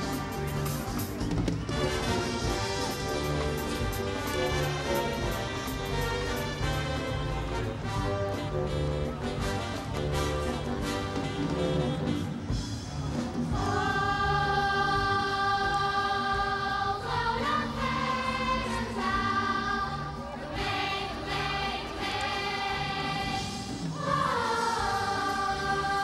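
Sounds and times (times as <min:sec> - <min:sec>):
choir singing held notes: 0:13.4 - 0:26.0.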